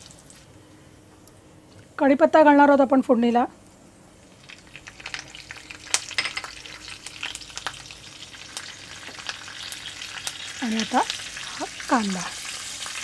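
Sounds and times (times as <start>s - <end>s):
hot oil sizzling: 4.1s - 13.0s
sharp popping of spices: 4.2s - 13.0s.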